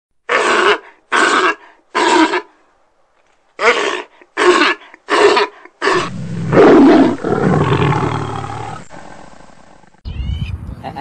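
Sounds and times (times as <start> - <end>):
lion roaring: 3.6 - 10.0.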